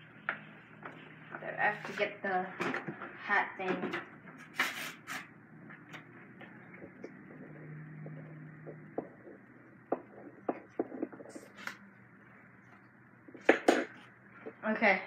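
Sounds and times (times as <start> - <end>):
faint household knocks and clicks: 0.3 - 4.4, 5.7 - 11.4.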